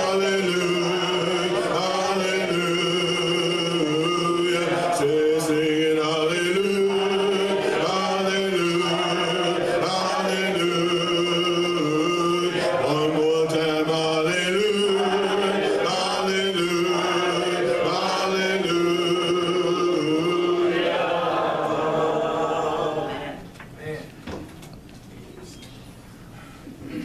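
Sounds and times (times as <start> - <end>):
man singing a hymn: 0.0 - 20.9.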